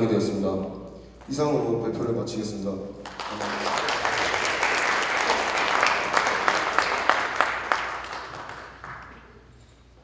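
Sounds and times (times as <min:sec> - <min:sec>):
audience applauding: 0:03.0 - 0:09.5.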